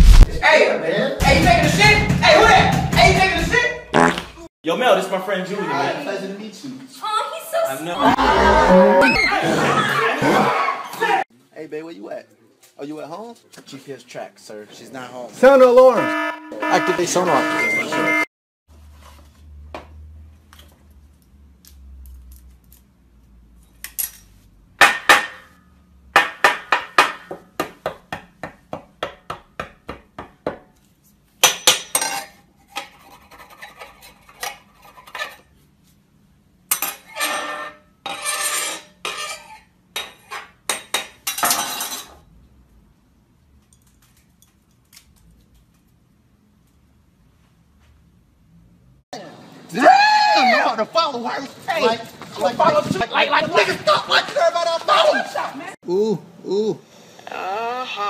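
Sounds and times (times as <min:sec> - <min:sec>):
kitchenware clatter and clinks: 0:39.1 - 0:42.2.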